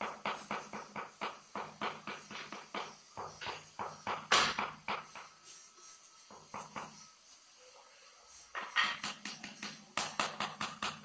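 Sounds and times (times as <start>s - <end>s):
hand tool tapping on tiles: 0.0s - 5.4s, 8.6s - 11.0s.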